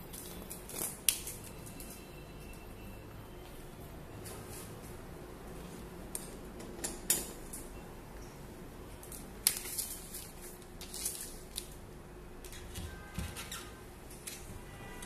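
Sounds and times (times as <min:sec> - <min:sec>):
plastic sheet crackling: 0:09.1 - 0:11.8.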